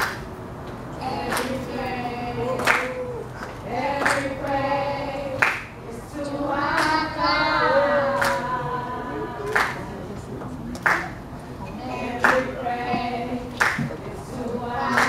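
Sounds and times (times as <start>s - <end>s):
sharp claps or knocks: 0.0s - 0.3s, 2.6s - 4.3s, 5.4s - 5.7s, 10.8s - 11.2s, 13.6s - 14.0s
girl singing into microphone: 1.0s - 9.5s, 11.8s - 15.0s.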